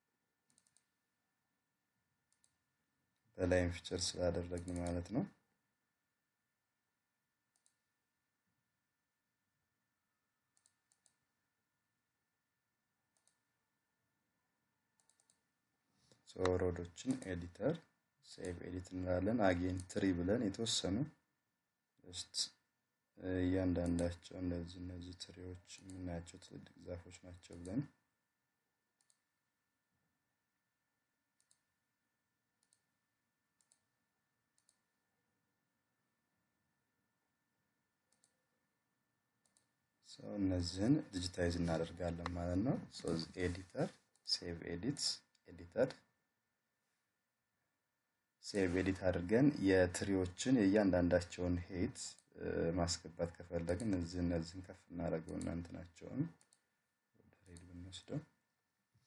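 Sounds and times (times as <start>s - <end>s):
computer mouse clicks: 0.5s - 0.9s, 4.6s - 5.0s, 7.5s - 7.8s, 10.6s - 11.2s, 13.2s - 13.4s, 15.0s - 15.4s, 29.0s - 29.2s, 31.4s - 31.7s, 32.6s - 32.9s, 33.6s - 33.9s, 34.6s - 34.8s, 38.1s - 38.4s, 39.4s - 39.7s.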